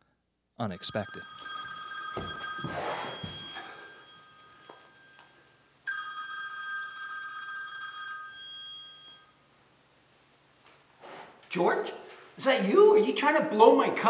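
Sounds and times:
telephone ringing: 0.7 - 9.4.

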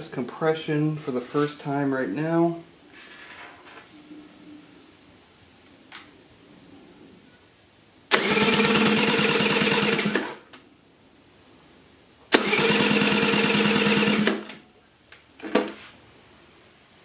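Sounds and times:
scooter engine cranking by starter: 8.1 - 10.5, 12.3 - 14.6.

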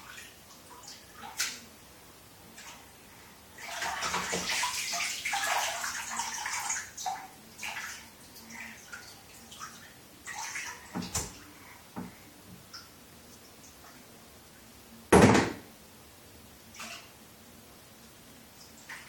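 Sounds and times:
water splashing in bathtub: 0.0 - 1.8, 2.5 - 13.0, 16.7 - 17.2
sharp thump: 15.1 - 15.7.

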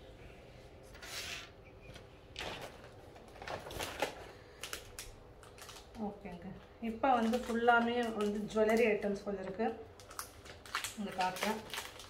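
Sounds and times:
packaging rustling: 2.3 - 9.2, 9.9 - 12.0.

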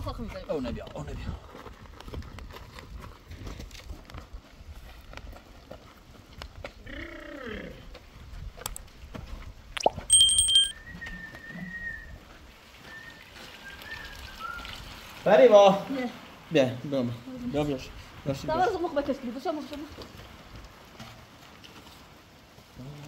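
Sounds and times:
sharp ringing metal clank: 10.1 - 10.7.

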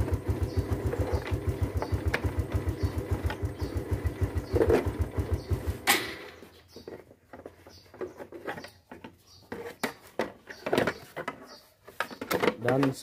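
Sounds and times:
motorcycle engine idling: 0.0 - 7.0
plastic clicks and clunk: 6.8 - 13.0.

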